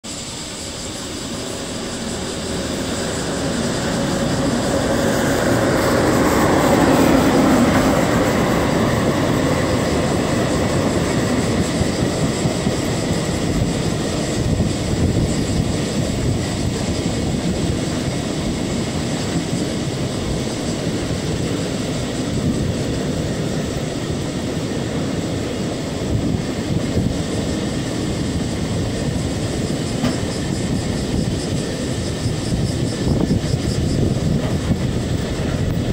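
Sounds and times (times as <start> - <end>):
train wheels rumbling on rail: 0.0 - 35.9.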